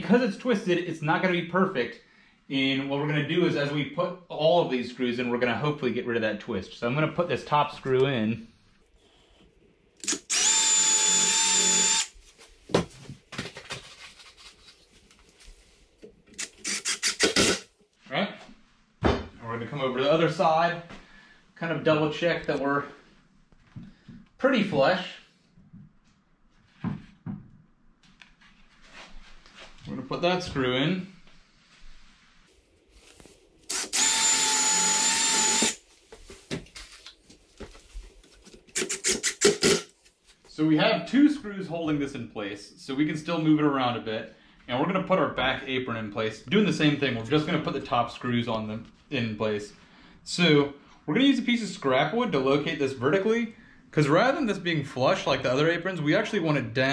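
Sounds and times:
cordless drill whine: 10.0 - 12.2, 33.7 - 35.8.

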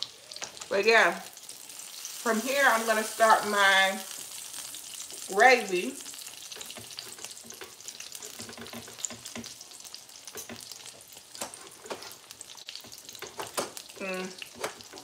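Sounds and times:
chicken sizzling in oil: 0.0 - 15.0.

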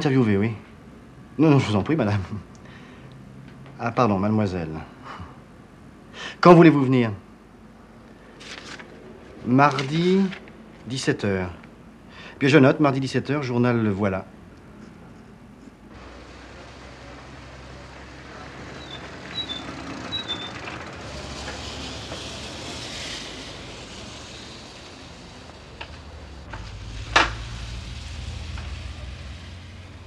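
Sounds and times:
street traffic: 0.6 - 3.8, 7.3 - 12.4, 14.3 - 30.0
moped engine running: 16.0 - 30.0.

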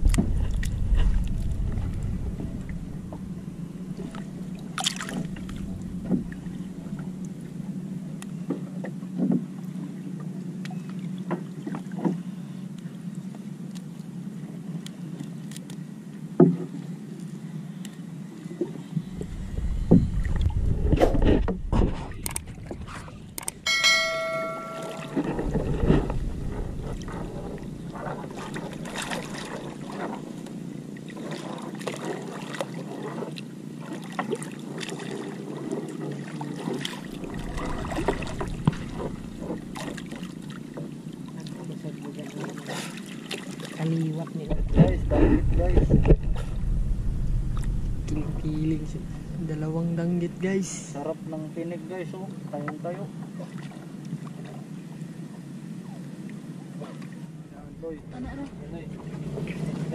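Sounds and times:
low rumble: 0.0 - 8.7, 18.8 - 30.9, 36.8 - 41.3, 44.5 - 51.4, 57.4 - 59.9
water around a boat: 0.0 - 59.9
short pitched tone: 23.6 - 28.1.

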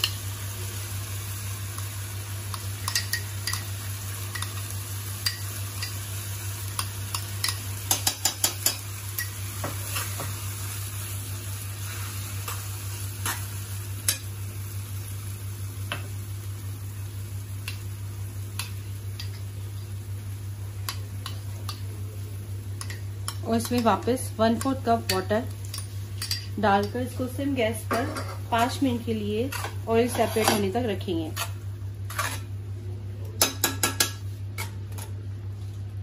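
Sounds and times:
gravy sizzling: 0.0 - 32.7
metal spoon scraping and clinking: 29.5 - 30.7, 31.3 - 32.5.

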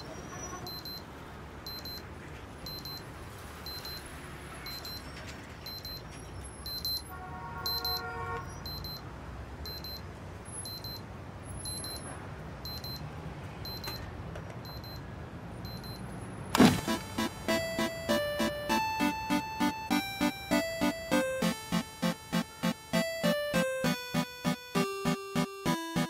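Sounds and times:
alarm clock beeping: 16.6 - 26.0.

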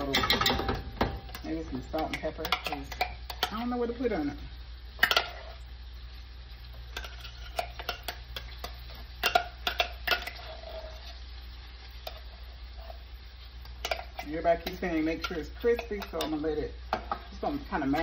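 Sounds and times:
food sizzling in frying pan: 0.0 - 18.0
steady low hum: 0.0 - 18.0
metal utensil scraping pan: 5.0 - 5.6, 6.9 - 11.2, 13.8 - 17.3.

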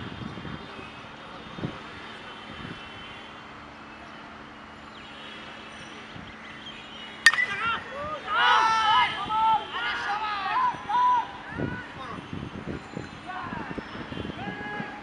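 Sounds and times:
city traffic roar: 0.0 - 15.0.

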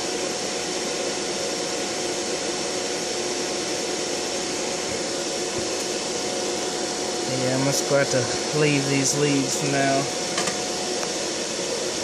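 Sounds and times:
electric fan rushing air: 0.0 - 12.0
thin steady fan tone: 0.0 - 12.0.

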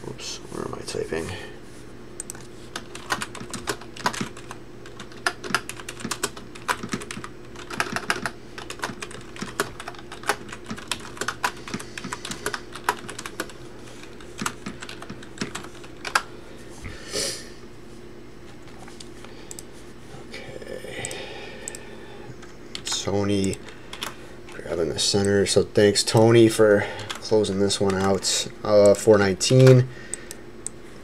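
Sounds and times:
faint steady hum: 0.0 - 31.0
typing on computer keyboard: 2.2 - 13.6, 14.4 - 16.2.

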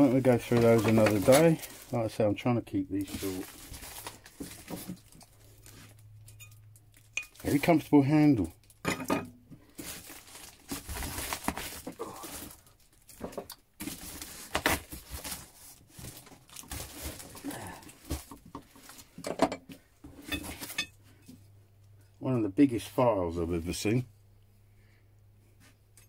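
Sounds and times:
plastic wrapping crinkling: 0.0 - 8.8, 9.6 - 19.2.

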